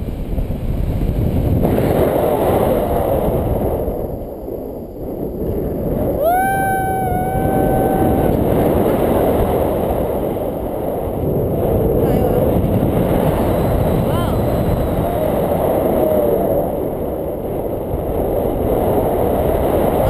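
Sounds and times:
wind buffeting microphone: 0.0s - 20.0s
high whoop: 6.1s - 8.7s, 14.1s - 16.9s.

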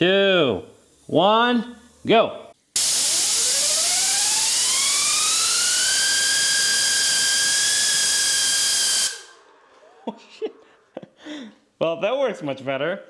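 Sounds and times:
loud gas hiss: 2.8s - 3.8s
turbine whine: 2.8s - 11.0s.

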